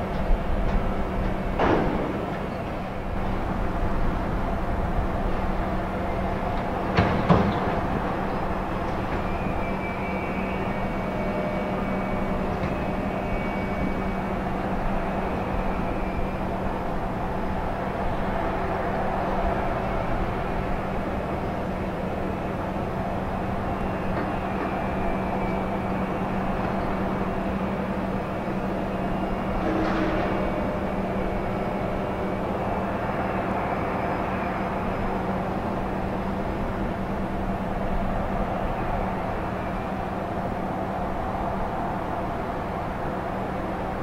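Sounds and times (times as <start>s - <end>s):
low rumble of machinery and engines: 0.0s - 44.0s.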